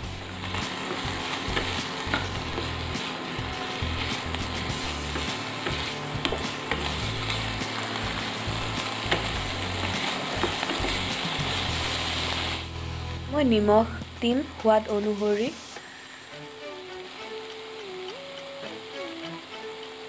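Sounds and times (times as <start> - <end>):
chicken sizzling in a pan: 0.0 - 20.0
wooden spatula scraping a pan: 0.4 - 12.6.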